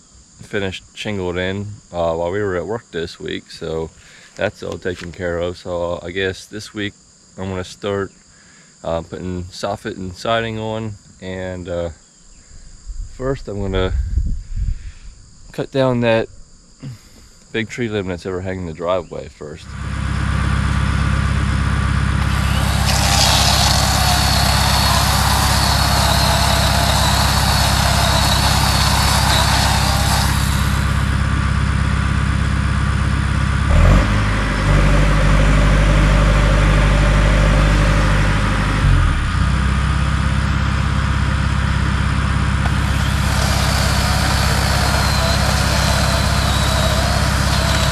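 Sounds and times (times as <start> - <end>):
boom lift engine running: 19.7 - 47.9
high wavering whine: 21.9 - 31.8, 42.6 - 47.9.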